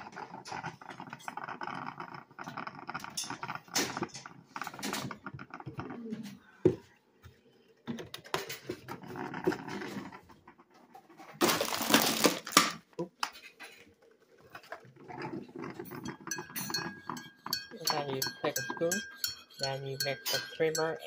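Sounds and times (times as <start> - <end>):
box and phone handling noises: 11.1 - 12.8.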